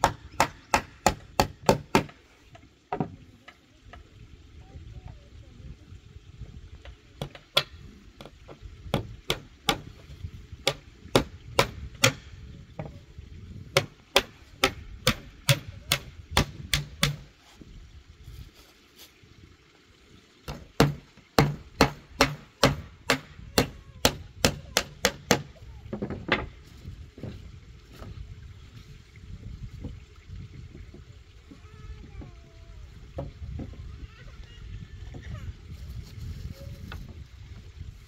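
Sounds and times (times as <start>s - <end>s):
hand tool striking wood: 0.0s - 2.2s, 7.2s - 10.0s, 10.6s - 12.3s, 13.8s - 17.3s, 20.5s - 26.5s.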